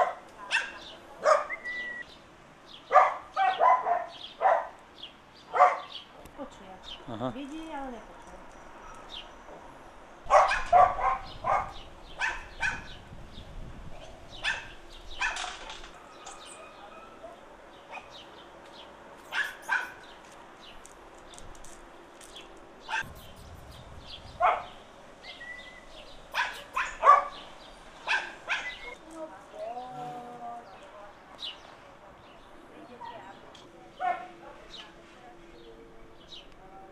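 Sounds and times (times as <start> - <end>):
dogs barking: 0.0 - 1.8, 2.9 - 4.8, 5.5 - 6.0, 10.3 - 13.0, 14.4 - 16.3, 17.9 - 18.2, 19.3 - 20.1, 24.4 - 24.8, 26.3 - 29.0, 34.0 - 34.4.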